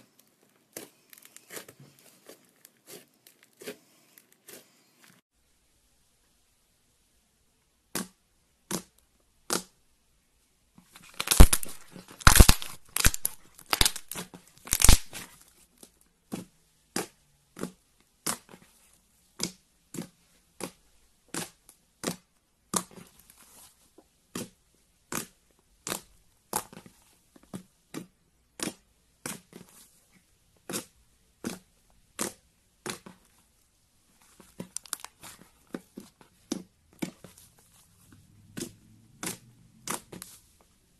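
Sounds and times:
slime crackling and tearing: 0:11.0 - 0:15.4, 0:34.6 - 0:35.5
slime popping: 0:11.2 - 0:15.2.

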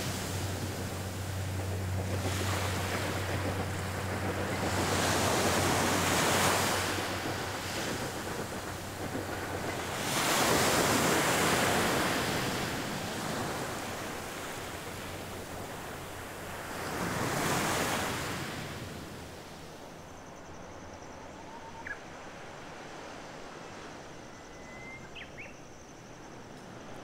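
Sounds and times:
high pulsing buzz: 0:00.0 - 0:19.2
surf breaking on a beach: 0:00.0 - 0:20.0.

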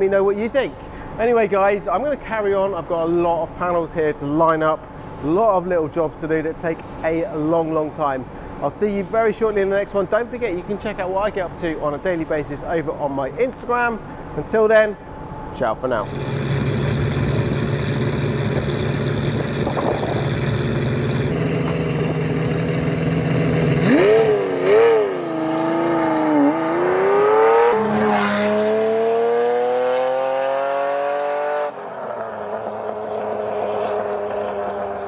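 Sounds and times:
sports car engine revving: 0:16.0 - 0:35.0.

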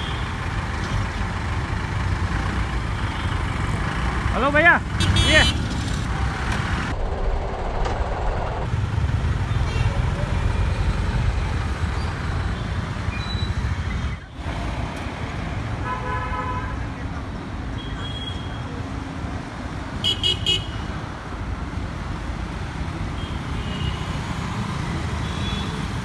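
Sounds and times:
city road traffic: 0:00.0 - 0:26.0
motorbikes and scooters passing: 0:01.3 - 0:15.8
car horn: 0:05.0 - 0:05.6, 0:15.8 - 0:16.8, 0:20.0 - 0:20.9.

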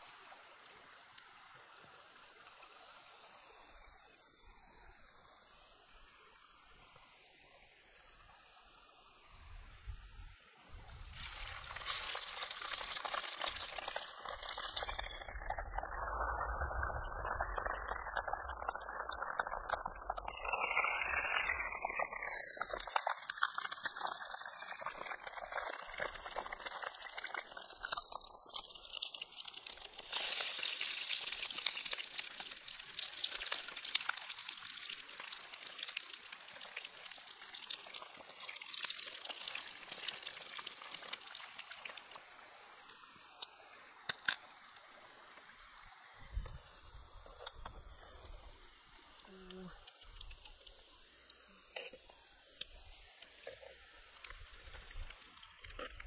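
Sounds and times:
fish frying in hot oil: 0:11.0 - 0:42.4.

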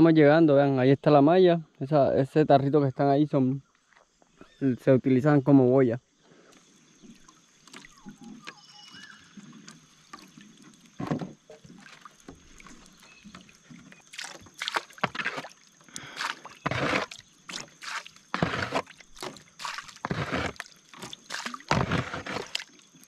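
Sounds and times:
water splashing and dripping: 0:07.0 - 0:23.0.

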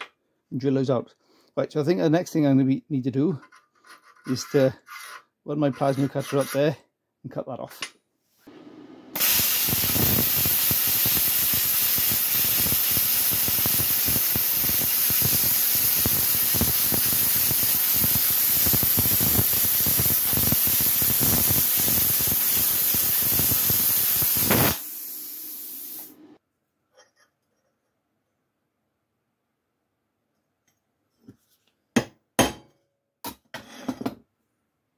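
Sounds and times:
plasma cutter hissing and crackling: 0:09.2 - 0:26.2.

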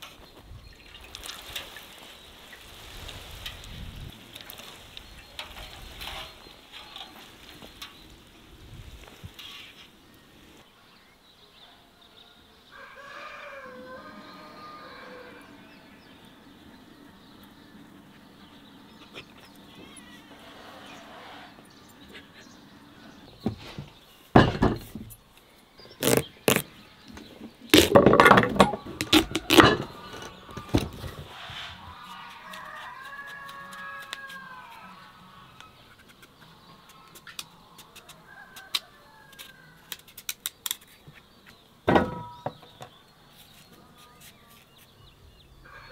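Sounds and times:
water pattering on leaves: 0:00.8 - 0:09.6, 0:32.0 - 0:34.8
pumpkin rind cracking: 0:26.0 - 0:26.7, 0:27.7 - 0:29.8, 0:32.0 - 0:34.8, 0:36.9 - 0:41.0.

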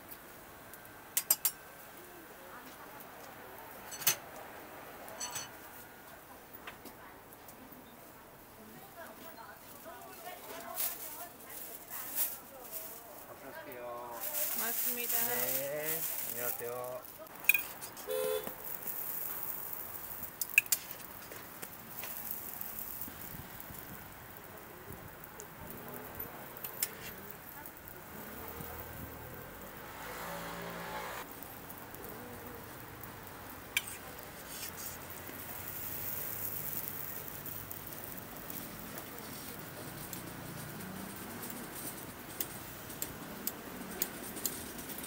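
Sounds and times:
dough sizzling on a griddle: 0:00.0 - 0:45.0
faint steady background noise: 0:00.0 - 0:45.0
metal clinks: 0:05.2 - 0:05.5.

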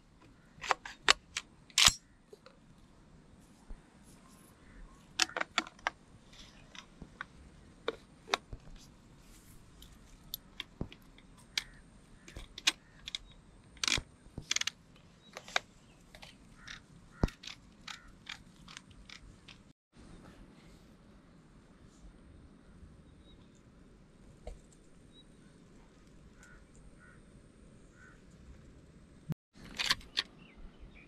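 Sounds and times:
gun parts clicking and clacking: 0:00.6 - 0:02.6, 0:05.2 - 0:06.9, 0:09.8 - 0:19.7, 0:29.6 - 0:30.3.

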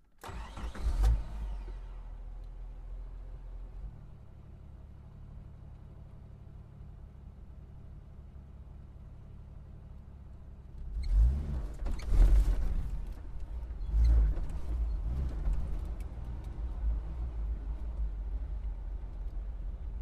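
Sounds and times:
car engine revving and pulling away: 0:00.2 - 0:04.2, 0:10.8 - 0:20.0.

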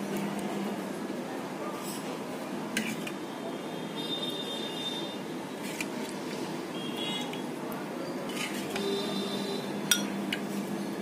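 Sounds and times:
steady background noise: 0:00.0 - 0:11.0
ladle clinking against dishes: 0:09.9 - 0:10.2.

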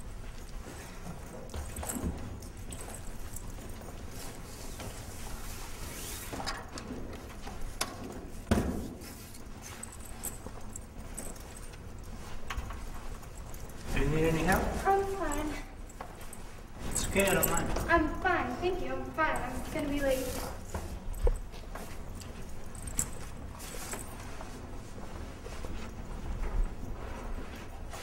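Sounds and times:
footsteps in a hallway: 0:00.0 - 0:28.0.

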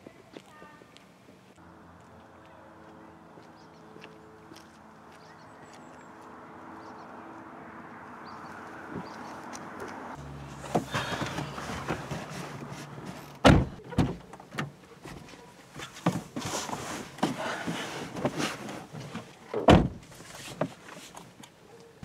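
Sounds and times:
shuffling into car seat: 0:10.5 - 0:13.3, 0:15.0 - 0:19.3
car door shutting: 0:10.6 - 0:15.2, 0:19.5 - 0:20.1
car door knocks: 0:13.4 - 0:14.2.

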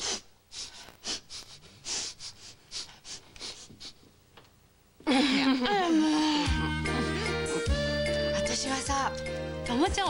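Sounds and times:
person sniffing: 0:00.0 - 0:04.1.

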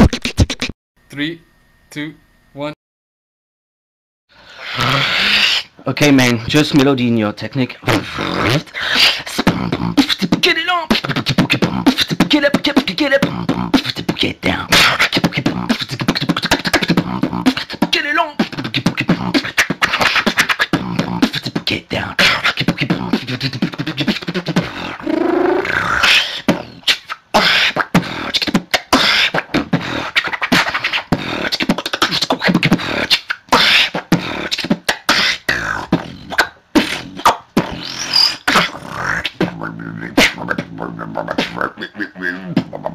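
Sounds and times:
person beatboxing: 0:00.0 - 0:00.7, 0:04.6 - 0:05.7, 0:07.6 - 0:42.9
person humming melodic lines: 0:09.3 - 0:42.9.

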